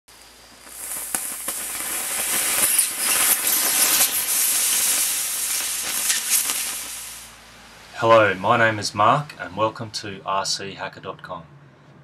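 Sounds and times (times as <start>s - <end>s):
crackles and pops: 0.1s - 9.5s
battery venting hiss: 0.1s - 10.2s.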